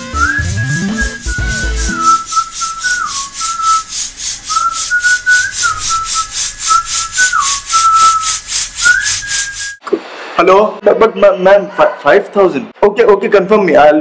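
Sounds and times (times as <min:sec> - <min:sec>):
shaker-like hiss rhythm: 0:00.0 - 0:09.8
whistled tune: 0:00.0 - 0:09.8.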